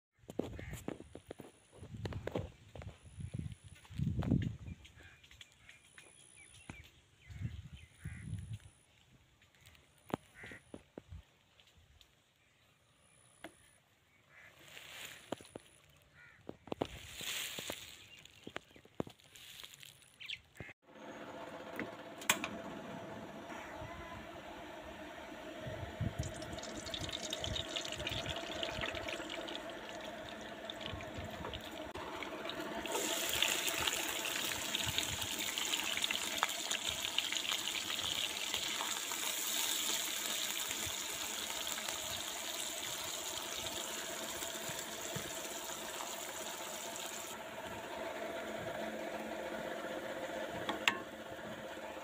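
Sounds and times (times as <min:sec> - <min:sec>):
onions sizzling in hot oil: 0:26.2 - 0:47.3.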